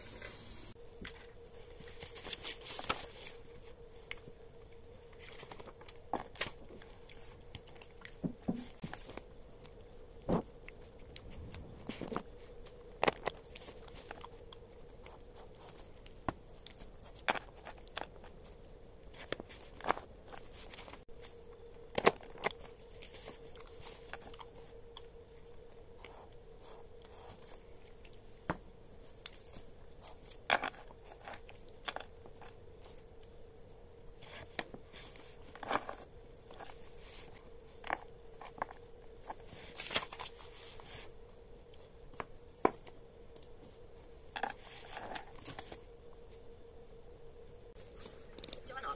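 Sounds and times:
faint steady hum: 0.0s - 48.9s
paper pages turning: 1.0s - 4.3s, 34.2s - 41.1s.

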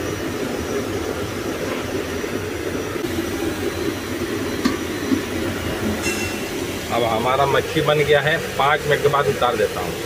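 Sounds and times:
gas stove burner roaring: 0.0s - 10.0s
metal plate clinking on pot: 6.0s - 6.5s.

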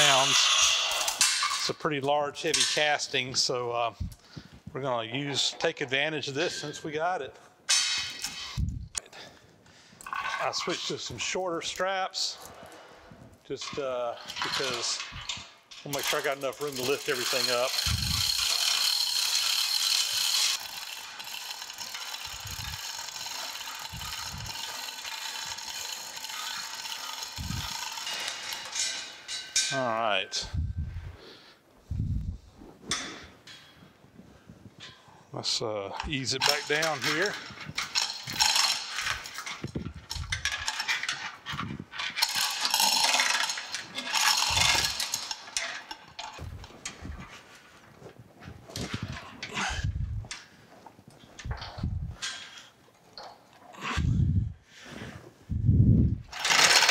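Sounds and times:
hoist chain rattling and ratcheting: 0.0s - 4.2s, 5.3s - 9.3s, 10.0s - 12.8s, 13.5s - 30.7s, 35.9s - 47.6s, 48.7s - 50.6s, 51.2s - 54.3s, 56.3s - 56.9s.

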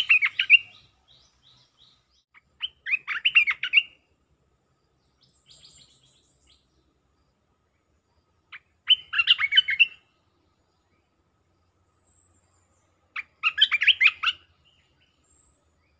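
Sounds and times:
bird chattering: 0.0s - 4.0s, 8.5s - 10.0s, 13.2s - 14.5s
faint high chirping: 0.0s - 15.9s.

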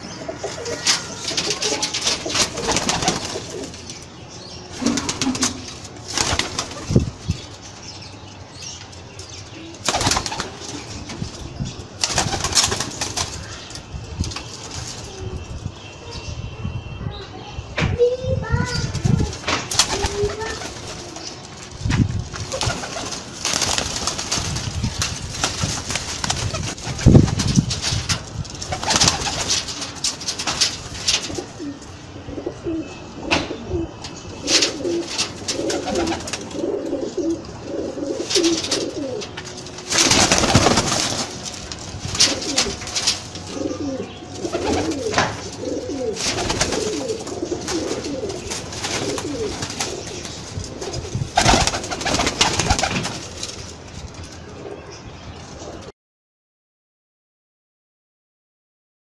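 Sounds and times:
pigeons cooing: 0.0s - 4.0s, 4.7s - 7.4s, 31.1s - 41.3s, 42.0s - 53.0s.

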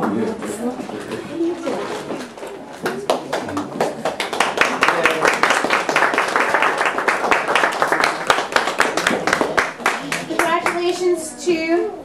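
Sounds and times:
people clapping: 2.2s - 11.1s.

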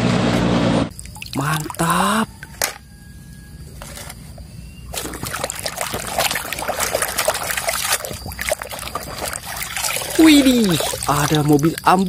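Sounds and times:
water splashing in plastic tub: 4.9s - 12.0s.

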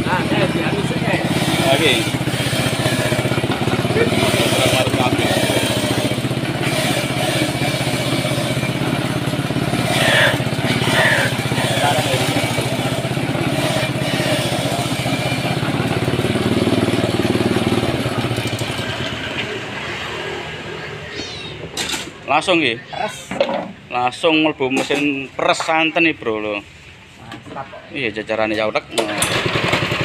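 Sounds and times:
motorized coconut grater drone: 0.0s - 20.0s
coconut flesh being grated: 1.0s - 17.0s.

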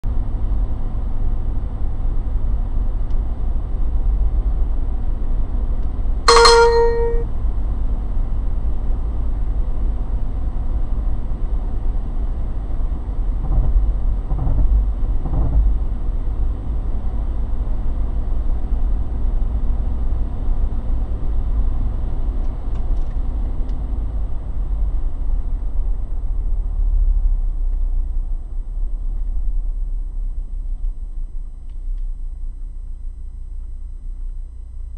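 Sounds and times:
short electronic beep: 6.3s - 7.2s.

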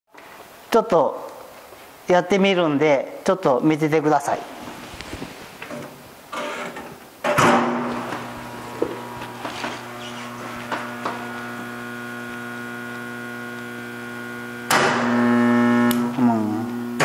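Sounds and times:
welding machine hum: 7.6s - 17.0s.

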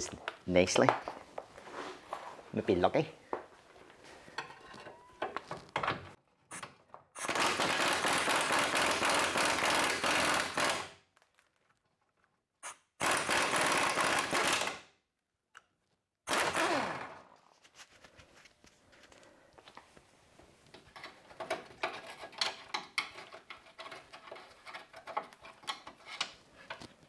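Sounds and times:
impact wrench hammering: 7.2s - 10.9s.

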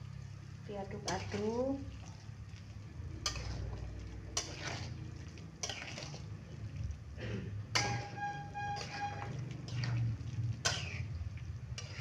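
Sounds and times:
metal spatula scraping wok: 3.2s - 6.5s, 7.6s - 12.0s.

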